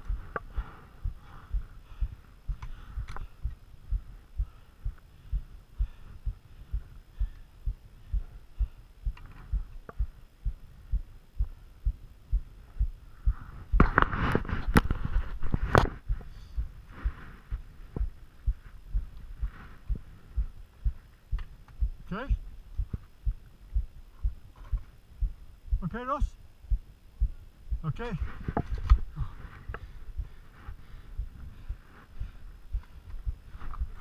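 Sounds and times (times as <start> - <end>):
low regular thumps: 0.0 - 34.0
jacket fabric rubbing on camera: 13.4 - 20.3.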